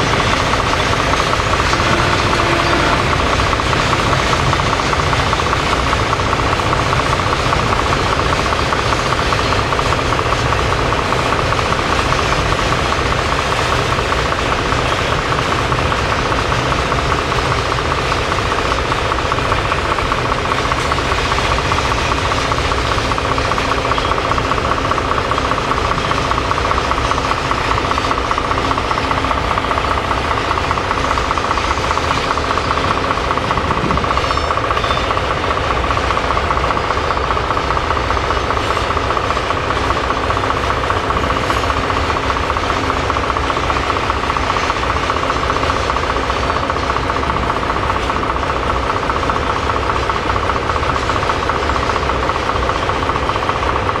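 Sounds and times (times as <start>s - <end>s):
diesel locomotive engine idling: 0.0s - 54.0s.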